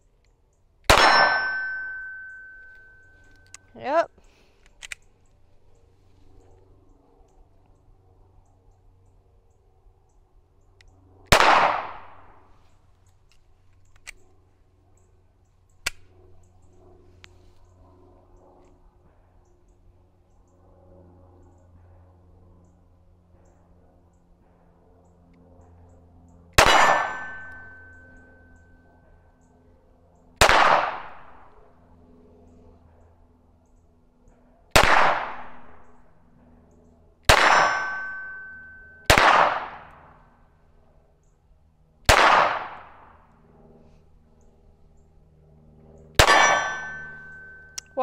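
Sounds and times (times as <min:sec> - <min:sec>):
pistol shots: 0:00.9 - 0:02.6, 0:11.3 - 0:12.4, 0:26.6 - 0:27.9, 0:30.4 - 0:31.5, 0:34.7 - 0:35.9, 0:37.3 - 0:40.1, 0:42.1 - 0:43.1, 0:46.2 - 0:47.6
metallic ring: 0:01.0 - 0:03.7, 0:26.6 - 0:29.2, 0:37.5 - 0:39.2, 0:46.2 - 0:48.0.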